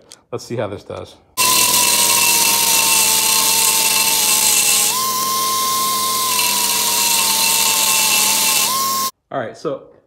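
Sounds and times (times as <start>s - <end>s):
belt sander grinding steel: 1.4s - 9.1s.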